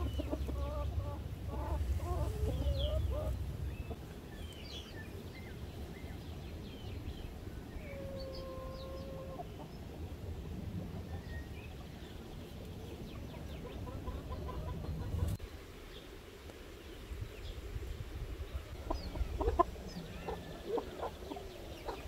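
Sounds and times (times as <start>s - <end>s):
chickens clucking: 0.0s - 4.0s, 7.8s - 15.4s, 18.6s - 22.0s
low rumble: 0.0s - 4.0s.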